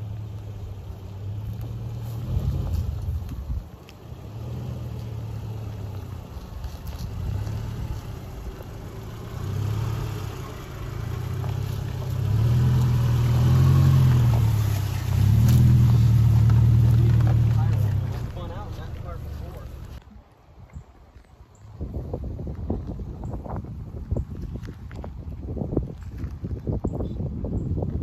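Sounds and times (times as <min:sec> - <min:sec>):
car engine pulling under load: 0:00.0 - 0:20.0.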